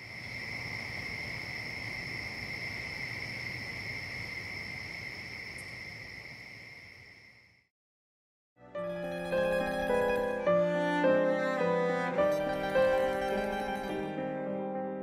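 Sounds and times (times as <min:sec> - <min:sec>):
crickets trilling: 0:00.0 - 0:07.7, 0:09.0 - 0:14.2.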